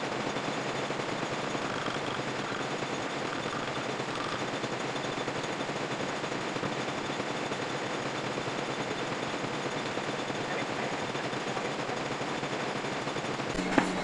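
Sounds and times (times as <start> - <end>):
metal lathe rattling: 0.3 - 10.3.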